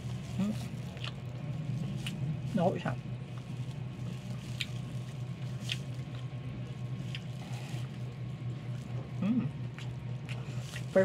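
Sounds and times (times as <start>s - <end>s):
steady low hum: 0.0s - 11.0s
wet chewing and mouth smacks: 0.6s - 2.3s, 4.4s - 4.9s, 5.5s - 6.3s, 7.0s - 7.9s, 9.6s - 11.0s.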